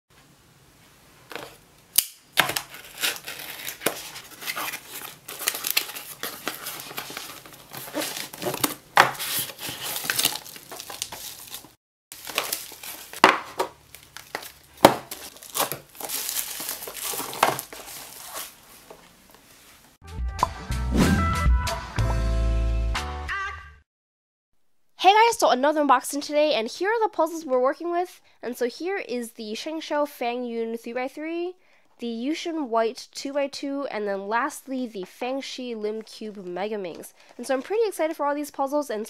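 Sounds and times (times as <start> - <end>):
cardboard and tape tearing: 1.3 - 19.0
bubble wrap crinkling: 1.3 - 20.0
boxes knocking on wooden table: 13.2 - 13.8, 14.8 - 15.2
music: 20.0 - 23.8.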